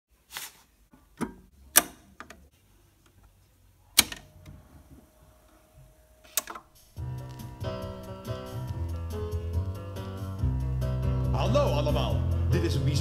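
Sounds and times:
vinyl record handling noises: 0.2 - 9.8.

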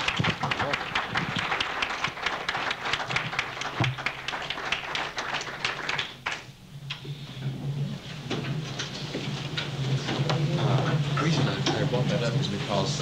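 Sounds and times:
audience applauding: 0.0 - 6.5.

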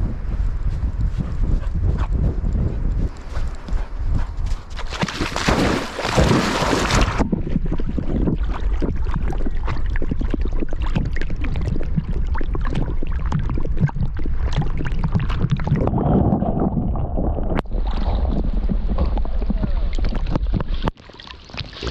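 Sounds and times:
water sloshing as dog swims: 3.3 - 21.9
dog splashing into water: 4.8 - 11.6
low rumble: 7.1 - 20.9
muffled underwater sound: 7.4 - 20.9.

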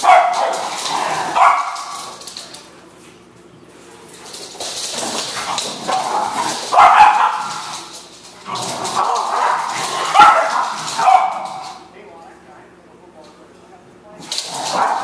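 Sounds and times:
dogs barking: 0.0 - 2.2, 5.2 - 11.9, 14.5 - 15.0.

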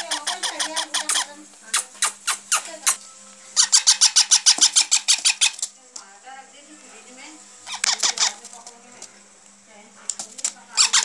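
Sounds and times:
baby parrots calling: 0.0 - 5.7, 7.5 - 8.7, 10.7 - 11.0.

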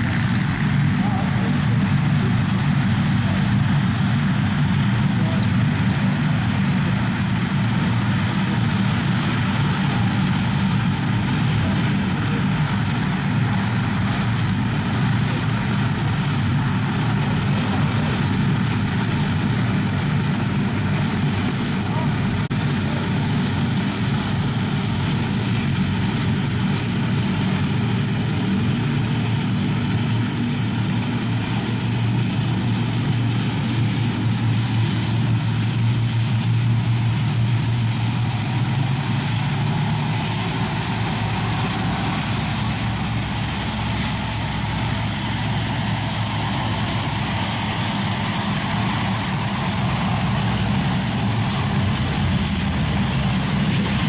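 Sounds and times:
high turbine whine: 0.0 - 54.0
propeller drone: 0.0 - 54.0.

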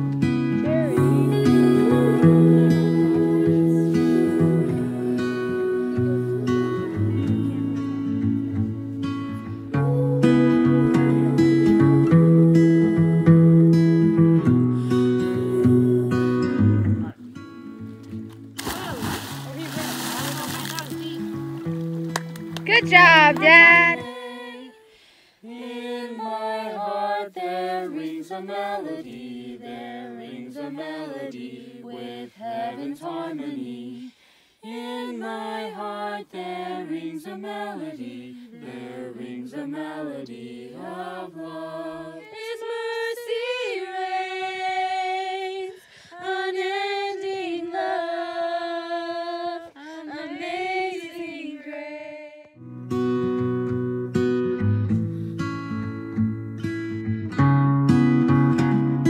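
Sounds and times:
higher voice singing: 0.6 - 7.8, 22.7 - 24.8
lower voice singing: 0.6 - 8.2, 9.8 - 13.8, 15.0 - 17.8, 22.7 - 24.8.

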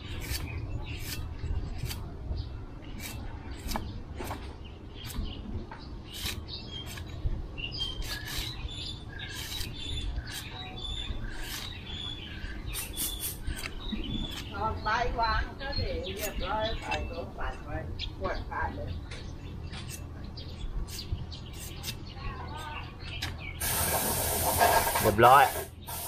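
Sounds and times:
birds chirping: 0.0 - 26.0
knife chopping coconut husk: 2.9 - 4.4.

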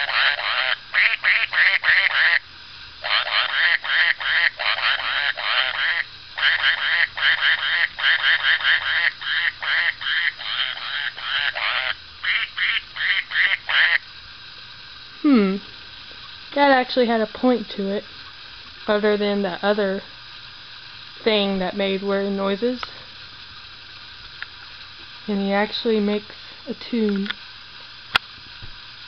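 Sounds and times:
toy playing tune of quacks: 0.0 - 14.1.

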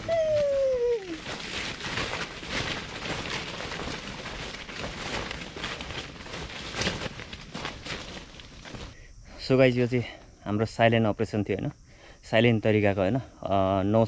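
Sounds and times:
footsteps crunching dry leaves: 0.0 - 9.0.

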